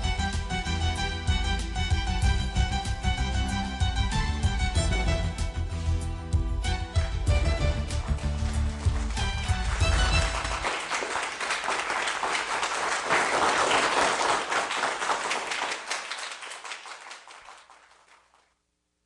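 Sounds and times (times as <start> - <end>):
music: 0.0 - 11.5
audience applauding: 7.7 - 18.5.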